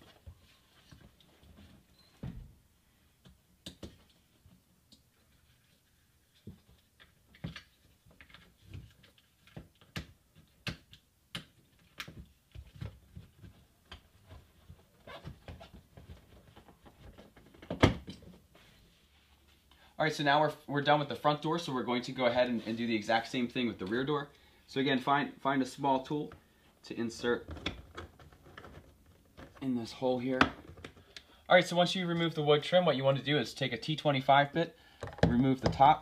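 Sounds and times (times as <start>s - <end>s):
plastic trim parts clicking and knocking: 35.0s - 35.8s.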